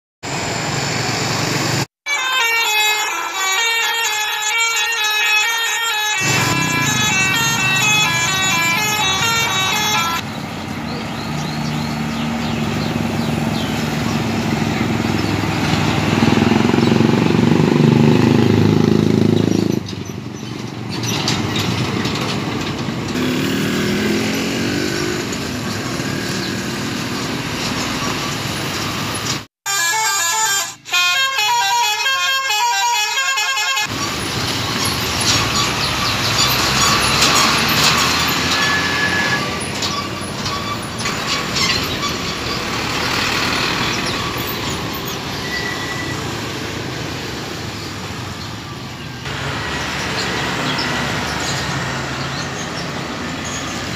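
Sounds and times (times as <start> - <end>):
trucks passing: 0.2 - 53.9
musical horn tune: 2.0 - 10.2, 29.6 - 34.0
stepped melodic notes: 2.1 - 10.2
motorcycles passing: 6.2 - 29.4, 33.8 - 53.9.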